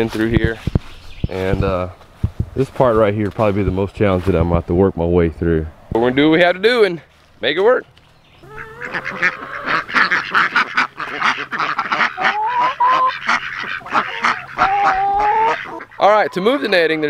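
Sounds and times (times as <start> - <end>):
ducks quacking: 8.4 - 17.0.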